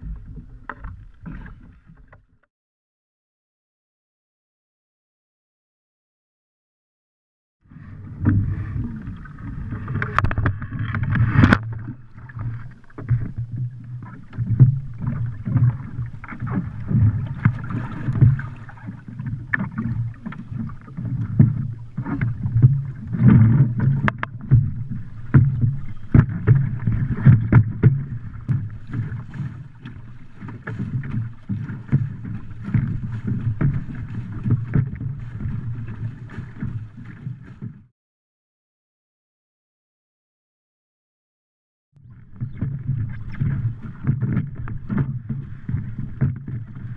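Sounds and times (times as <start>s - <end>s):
water sloshing in a boat: 0.0s - 2.5s, 7.7s - 37.9s, 42.0s - 46.9s
water thrown overboard: 7.8s - 37.9s, 42.0s - 46.9s
knocks on wooden boat: 22.6s - 29.2s.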